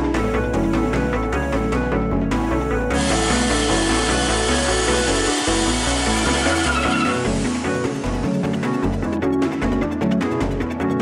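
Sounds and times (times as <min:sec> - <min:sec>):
background music with bass line: 0:00.0 - 0:11.0
power drill boring into wood: 0:03.0 - 0:08.2.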